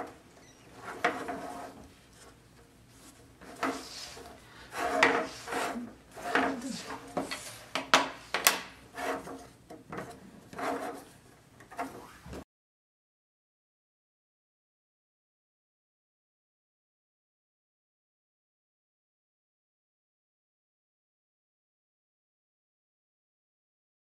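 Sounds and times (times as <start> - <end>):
wooden parts scraping and knocking: 0.0 - 12.4.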